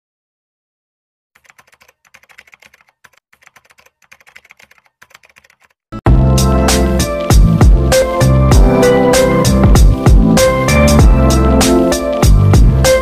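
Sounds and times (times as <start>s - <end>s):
keyboard typing clicks: 1.4s - 5.8s
loud music with strong beat: 6.1s - 13.0s.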